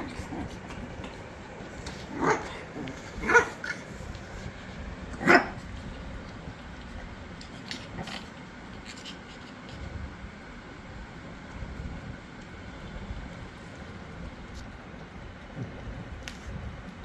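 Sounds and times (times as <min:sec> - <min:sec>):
puppy barking: 0:02.1 - 0:03.8, 0:05.1 - 0:05.6.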